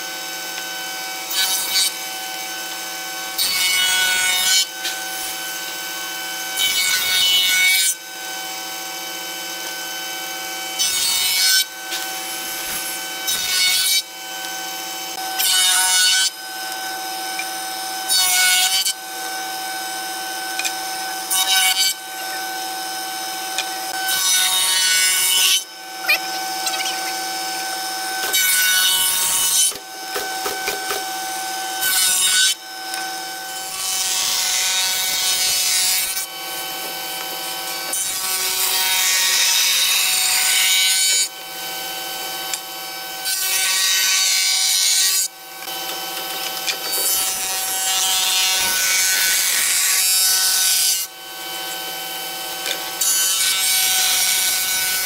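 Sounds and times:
belt sander: 0.0s - 55.0s
power tool cutting wood: 0.0s - 55.0s.

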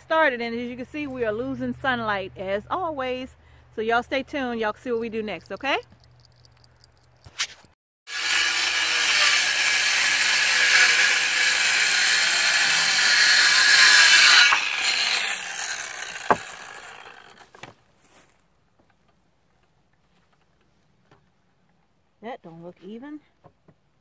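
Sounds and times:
circular saw cutting wood: 8.1s - 17.6s.

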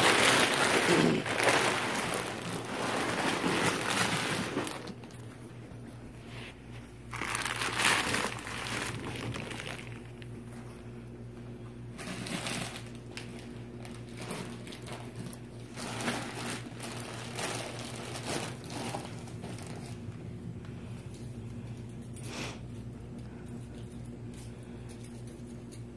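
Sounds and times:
plastic wrap crinkling and rustling: 0.0s - 10.8s, 11.9s - 20.3s.

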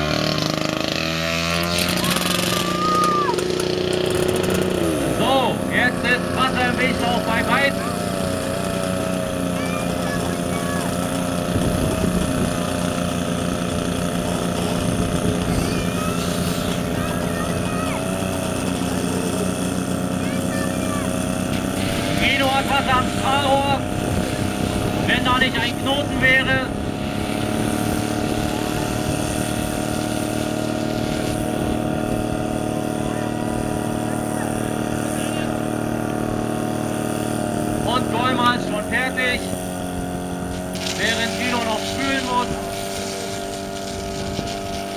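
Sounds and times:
fire pump engine running: 0.0s - 44.9s.

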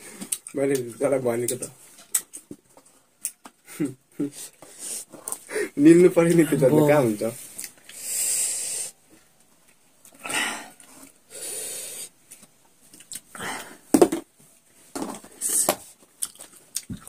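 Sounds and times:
hissing breaths drawn in: 4.3s - 5.8s, 7.9s - 9.0s, 10.2s - 12.2s
sucking sounds: 7.9s - 9.0s.

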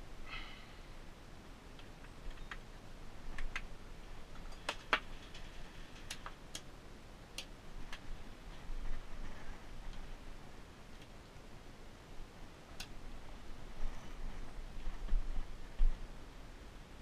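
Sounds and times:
light sharp clicks and taps: 12.8s - 13.0s.

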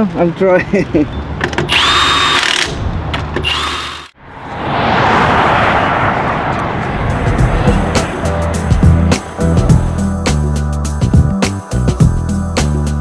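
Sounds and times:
pneumatic impact wrench whining: 1.5s - 4.2s
broad rushing noise: 4.1s - 10.5s.

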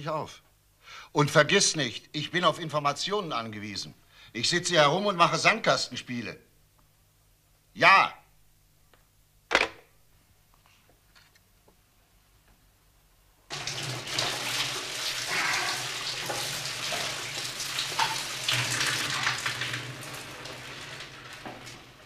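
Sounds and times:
shower water spraying: 13.5s - 22.0s.

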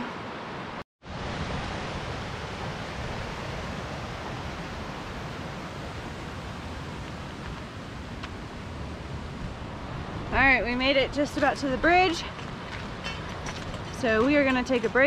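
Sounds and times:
creek rushing over rocks: 9.6s - 15.0s.

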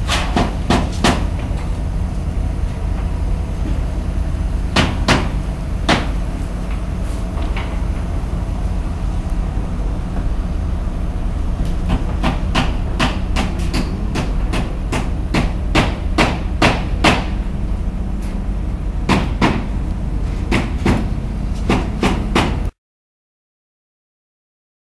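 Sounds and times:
steady low rumble: 0.0s - 22.7s
hammering blows: 0.1s - 1.7s, 4.7s - 6.4s, 11.6s - 17.5s, 19.0s - 22.7s.

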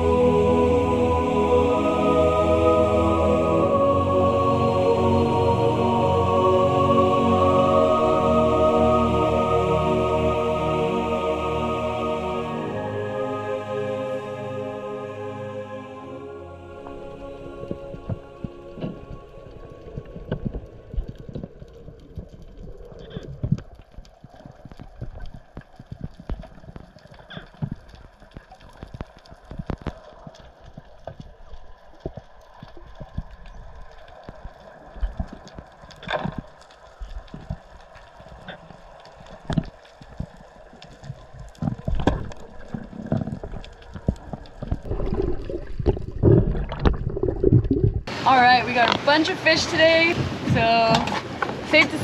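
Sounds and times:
dull underwater background: 0.0s - 52.0s
muffled underwater knocks and clicks: 41.0s - 48.1s.

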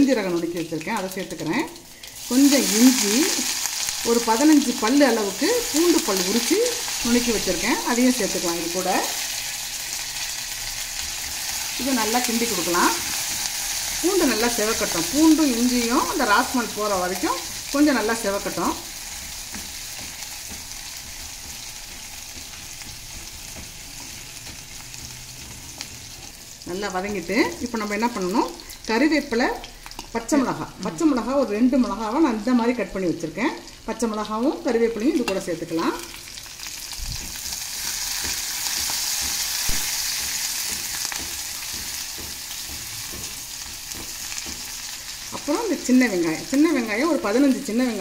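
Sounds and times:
garlic sizzling in oil: 0.0s - 48.0s
spatula stirring in pan: 10.6s - 28.8s, 36.4s - 45.8s.

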